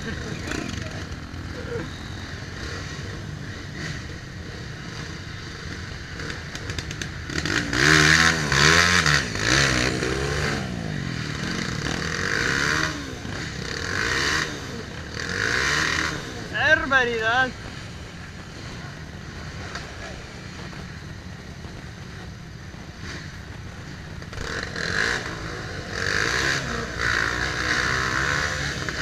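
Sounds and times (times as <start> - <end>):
dirt bike engine running: 0.0 - 29.0
dirt bike engine revving hard: 7.3 - 17.8, 24.3 - 29.0.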